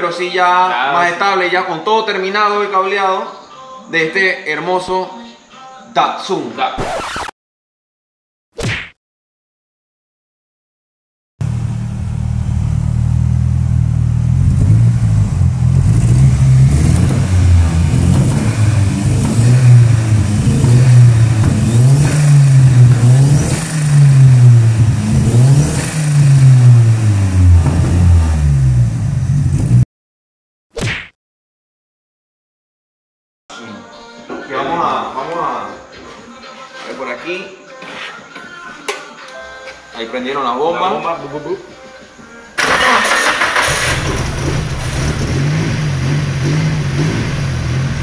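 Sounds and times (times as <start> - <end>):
car engine idling and revving: 11.4 - 29.8, 42.6 - 48.0.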